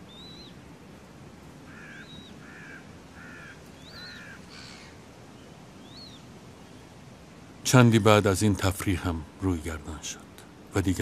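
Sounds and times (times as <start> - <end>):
low harsh bird notes: 0.0 - 0.8, 1.6 - 7.2
steady background hiss: 0.0 - 11.0.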